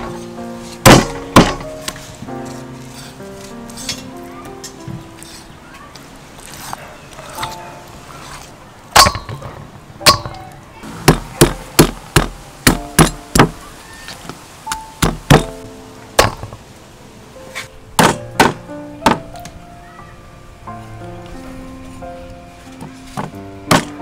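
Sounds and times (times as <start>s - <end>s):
background music: 0.0s - 5.6s, 10.0s - 13.6s, 14.7s - 24.0s
cleaver chopping on wooden block: 0.8s - 1.7s, 23.2s - 24.0s.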